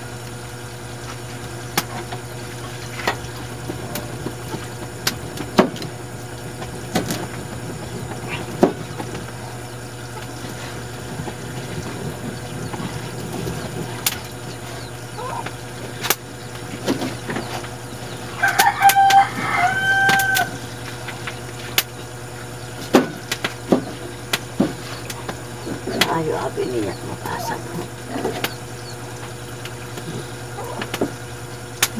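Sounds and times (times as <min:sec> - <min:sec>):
steady low hum: 0:00.0 - 0:31.9
rooster crowing: 0:18.3 - 0:20.7.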